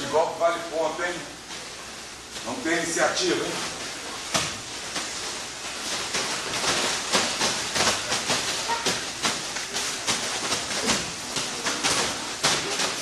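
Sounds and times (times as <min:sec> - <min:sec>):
steady hiss: 0:00.0 - 0:13.0
bodies slapping on a mat: 0:03.3 - 0:13.0.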